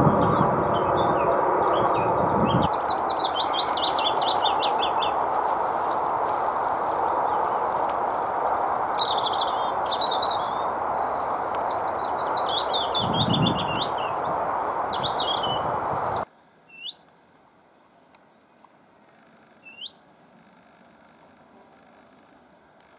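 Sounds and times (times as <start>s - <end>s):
steady rushing noise: 0.0s - 16.3s
faint rising bird call: 0.0s - 17.0s
warbler singing high notes: 0.0s - 17.0s.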